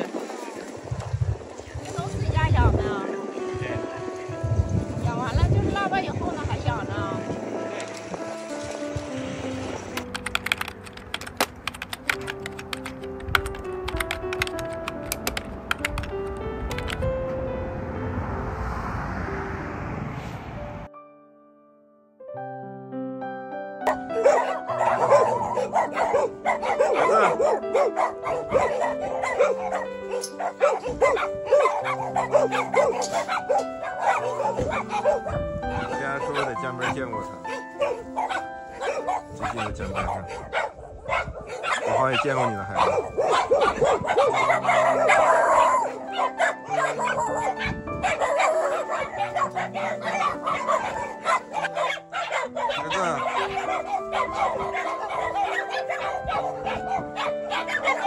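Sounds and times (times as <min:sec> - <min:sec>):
keyboard music: 0:01.7 - 0:58.0
dog whining and yipping: 0:24.2 - 0:36.5, 0:37.5 - 0:42.0, 0:42.8 - 0:58.0.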